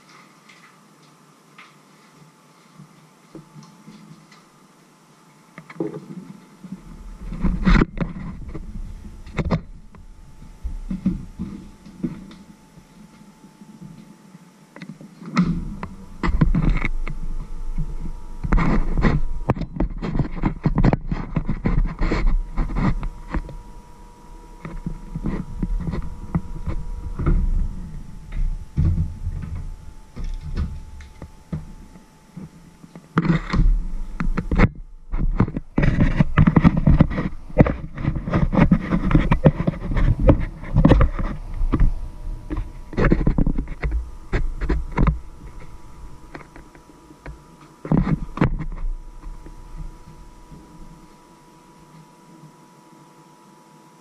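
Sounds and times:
faint steady tone: 0.0s - 54.0s
hand rubbing camera microphone: 6.2s - 12.9s, 15.6s - 51.3s.

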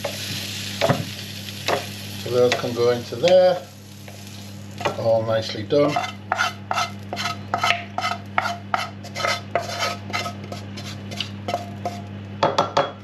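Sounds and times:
steady low hum: 0.0s - 13.0s
wooden spoon scraping a frying pan: 4.1s - 12.1s.

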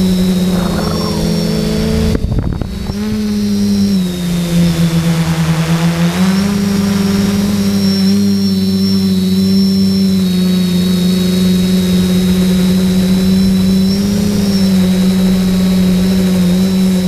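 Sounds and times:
quadcopter motors humming and whining: 0.0s - 17.0s.

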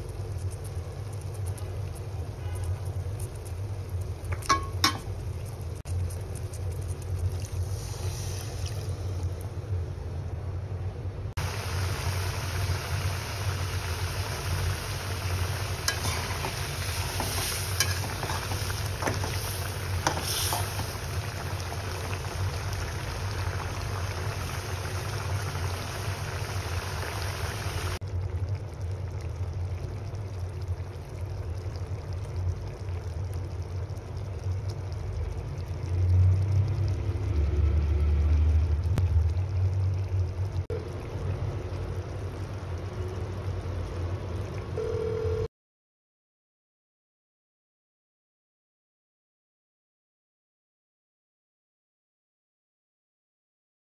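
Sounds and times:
curry bubbling and sizzling: 0.0s - 44.9s.

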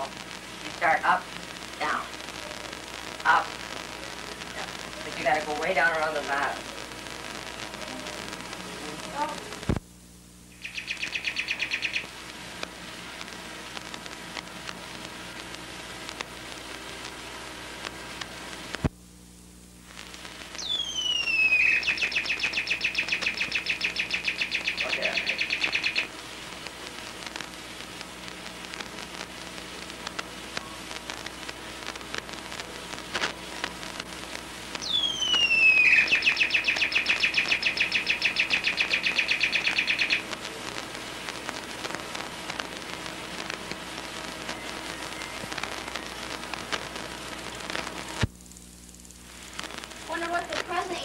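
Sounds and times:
tape hiss and crackle: 0.0s - 51.0s
high falling whistle: 34.8s - 36.7s.

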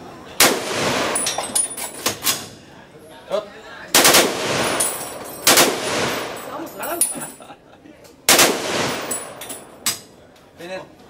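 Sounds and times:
machine gun bursts echoing: 4.0s - 6.5s, 8.3s - 9.4s.

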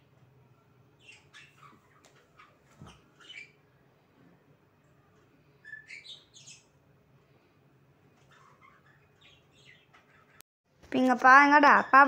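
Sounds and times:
budgerigars chirping: 1.0s - 3.6s, 5.6s - 6.8s, 8.2s - 10.4s.

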